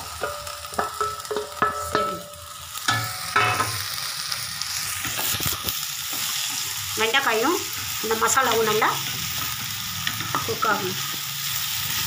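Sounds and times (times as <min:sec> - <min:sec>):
okra sizzling in hot oil: 0:00.0 - 0:12.0.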